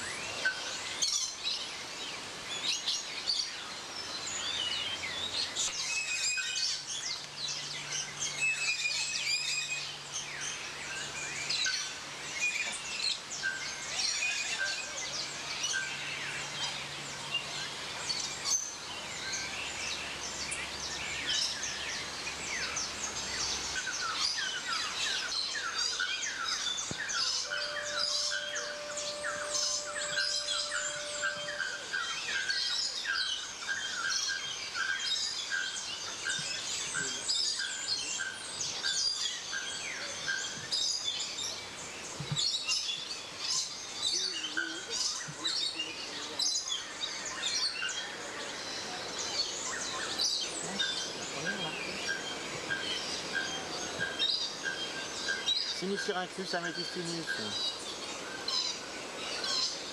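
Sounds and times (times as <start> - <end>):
chorus of birds chirping: 0.0 - 59.9
steady tone: 27.5 - 32.2.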